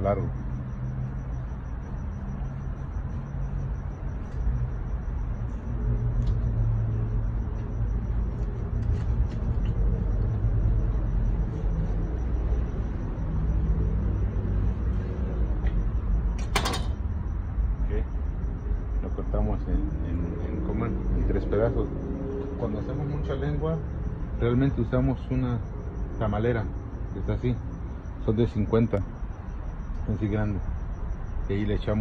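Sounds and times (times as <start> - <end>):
faint high whine: 0.0 - 32.0
motor rumble and hum: 0.0 - 32.0
faint ticks: 2.8 - 6.8, 15.6 - 15.9.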